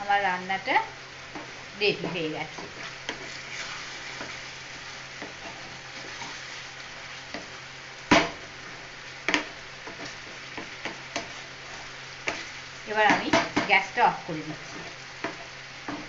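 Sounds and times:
curry sizzling and bubbling: 0.0 - 16.0
spatula scraping pan: 1.3 - 7.6, 9.3 - 13.6, 14.6 - 16.0
spatula knocking pan: 8.1 - 8.4, 9.3 - 11.4, 12.2 - 13.9.

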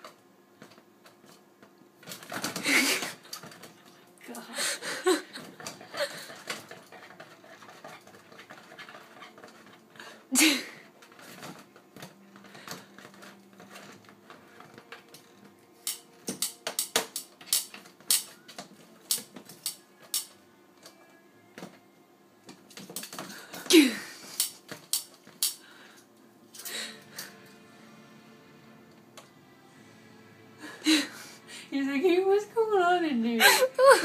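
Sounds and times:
tongs clacking against plastic flap: 15.0 - 21.0, 24.3 - 25.6.

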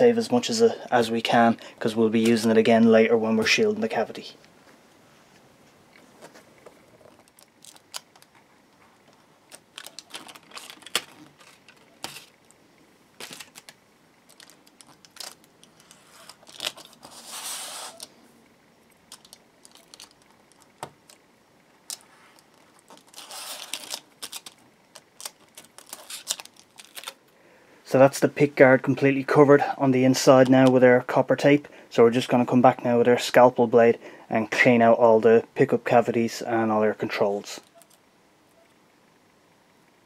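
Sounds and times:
copper foil crinkling: 7.0 - 12.6, 13.2 - 18.1, 19.0 - 21.2, 21.8 - 27.2.

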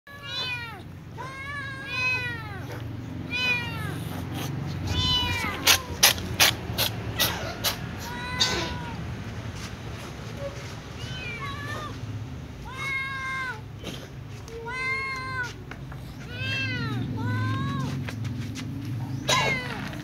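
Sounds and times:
cat meowing: 0.1 - 9.1, 11.0 - 12.0, 12.6 - 13.7, 14.5 - 18.0
second cat meowing: 0.1 - 9.1, 11.0 - 12.0.

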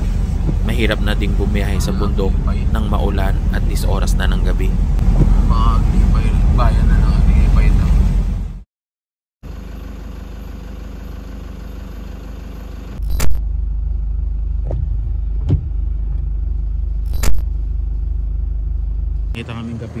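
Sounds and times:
van engine humming: 0.0 - 8.6, 9.4 - 20.0
sharp knocks: 14.6 - 16.3.

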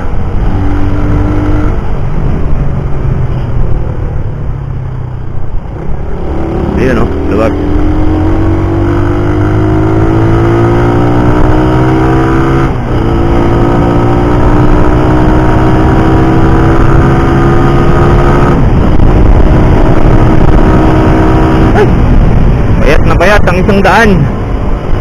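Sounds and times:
motorcycle engine accelerating: 0.0 - 23.0
wind on microphone: 0.0 - 23.4.

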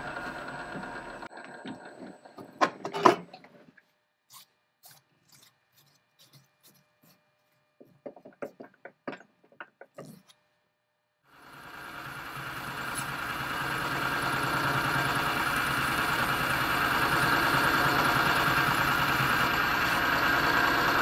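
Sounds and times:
lathe spindle running down: 0.0 - 2.5, 11.3 - 21.0
hand clicking and rubbing on metal: 4.3 - 10.4.

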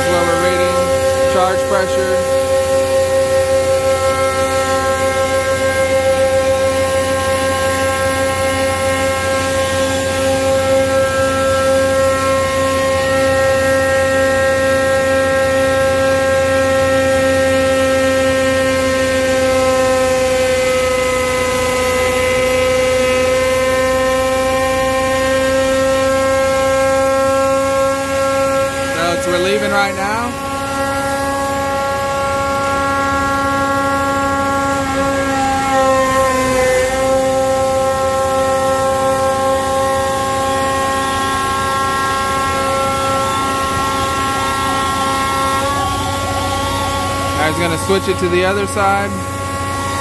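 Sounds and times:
hydraulic pump whine: 0.0 - 50.0.

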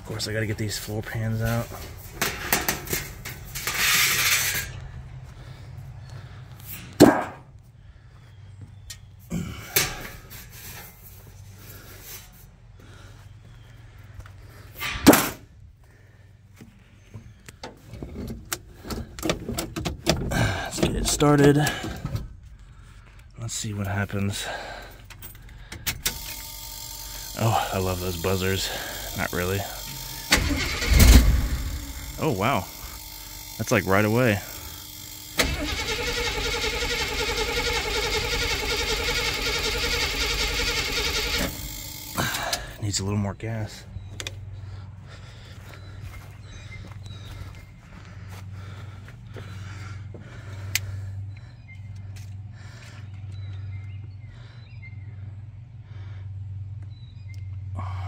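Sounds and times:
engine cranking on starter: 0.0 - 7.0, 17.9 - 22.4, 24.3 - 42.8
accelerator pedal clicks and knocks: 17.1 - 22.5.

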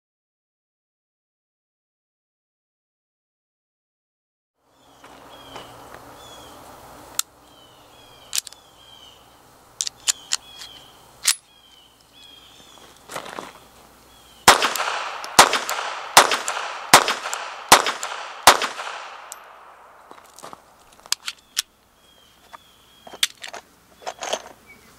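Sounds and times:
pistol clicks: 8.3 - 8.6, 9.8 - 11.4, 14.5 - 19.7
pistol shots echoing: 14.4 - 20.0.

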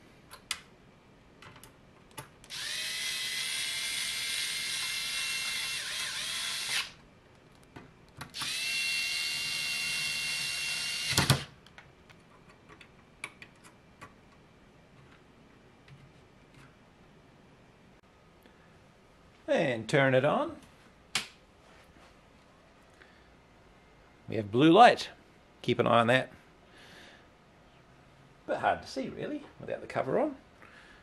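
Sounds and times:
electric screwdriver motor whine: 2.5 - 6.9, 8.4 - 11.5
small clicks and taps: 11.6 - 14.4.

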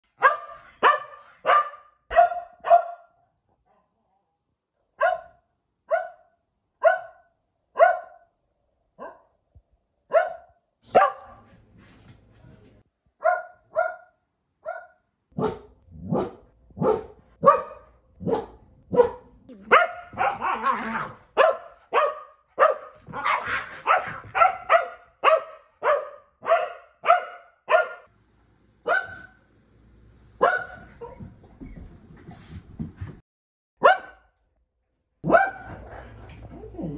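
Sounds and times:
dog barking: 0.0 - 3.9, 4.9 - 8.3, 9.0 - 9.4, 10.1 - 11.5, 13.2 - 28.1, 28.8 - 29.4, 30.4 - 31.3, 33.8 - 34.3, 35.2 - 35.8.

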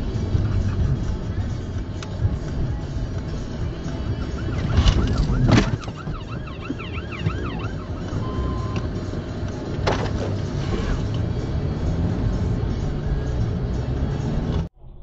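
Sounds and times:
road noise inside car: 0.0 - 15.0
police siren yelping: 3.9 - 8.9.

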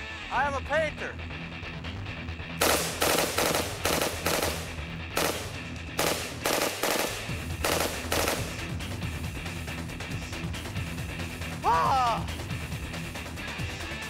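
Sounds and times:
background music: 0.0 - 14.0
rifle firing rapid bursts: 2.6 - 8.8.

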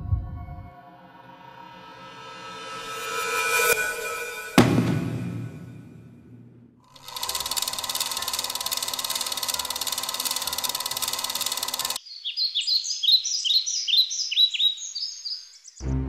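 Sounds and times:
film projector rattle: 6.9 - 12.0
small birds chirping: 12.0 - 15.8.

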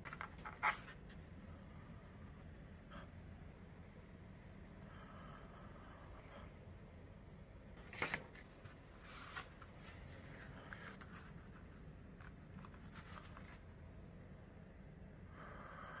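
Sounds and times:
paper and cardboard rustling: 7.8 - 13.7.

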